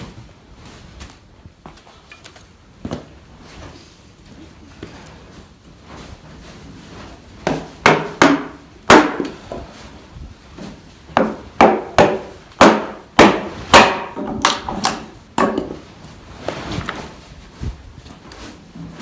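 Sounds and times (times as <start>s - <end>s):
mallet knocking on hatchet: 7.4s - 9.3s, 11.2s - 15.7s.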